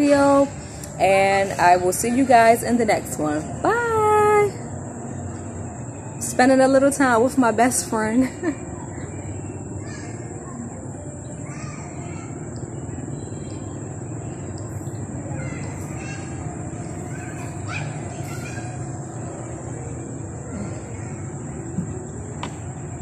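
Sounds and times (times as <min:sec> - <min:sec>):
low background noise: 0:00.0 - 0:23.0
birds calling: 0:07.9 - 0:23.0.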